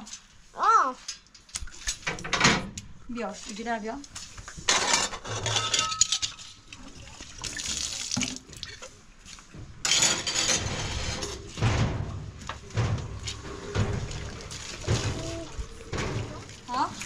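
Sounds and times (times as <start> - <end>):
water running and splashing: 6.6 - 9.5, 12.3 - 17.0.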